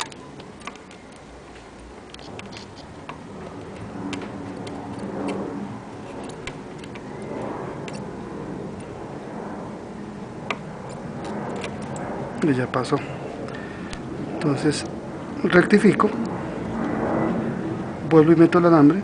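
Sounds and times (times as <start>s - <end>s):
sharp ticks and clicks: 0.0s - 8.1s, 8.7s - 9.0s, 10.4s - 15.0s
low steady hum: 0.0s - 19.0s.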